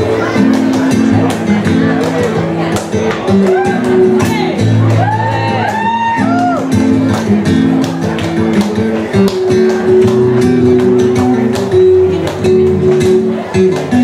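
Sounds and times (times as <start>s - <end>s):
flamenco guitar: 0.0s - 14.0s
sharp hand claps: 5.0s - 14.0s.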